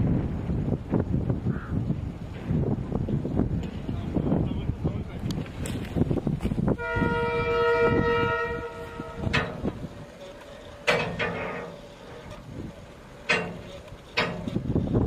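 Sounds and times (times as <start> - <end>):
locomotive horn blast: 6.7 - 12.4.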